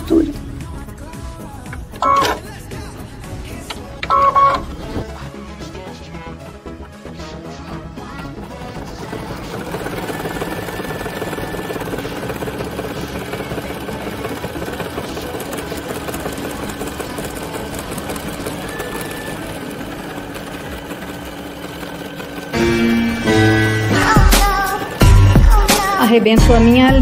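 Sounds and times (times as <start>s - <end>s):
embroidery machine stitching: 8.0s - 27.0s.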